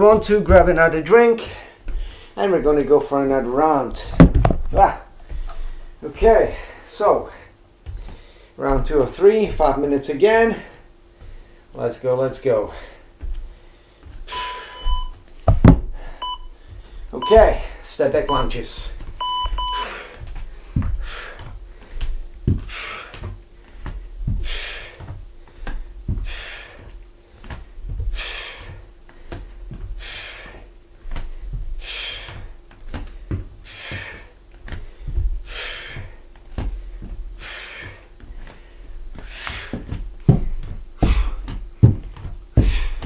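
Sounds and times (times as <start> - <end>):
bare feet thudding on wooden floor: 0.0 - 11.6, 12.6 - 43.0
hands and feet knocking on floor: 4.0 - 5.5, 13.2 - 16.0, 18.8 - 26.3, 39.1 - 43.0
interval timer beep: 14.3 - 15.2, 16.2 - 16.5, 17.2 - 17.7, 18.3 - 18.5, 19.2 - 19.9.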